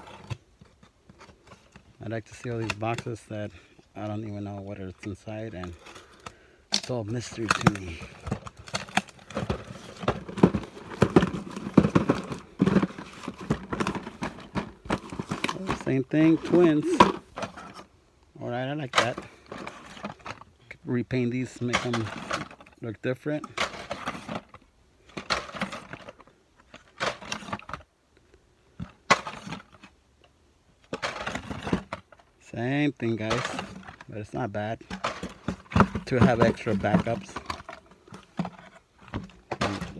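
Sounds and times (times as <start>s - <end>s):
plastic packs rustling and scraping: 0.0s - 27.9s, 28.7s - 30.0s, 30.8s - 39.9s
cardboard box being opened: 35.1s - 37.6s.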